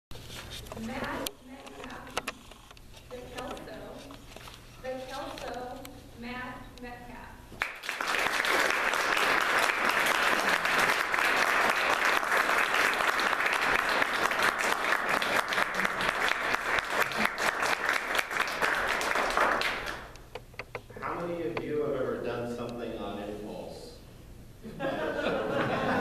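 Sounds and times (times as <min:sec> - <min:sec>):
audience applauding: 0:07.6 - 0:20.1.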